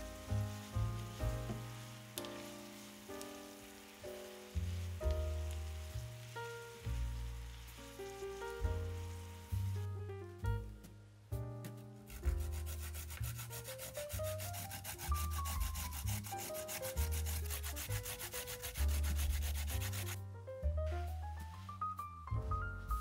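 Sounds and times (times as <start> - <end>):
background music: 0.0 - 23.0
carrot rasping on metal grater: 12.5 - 20.2.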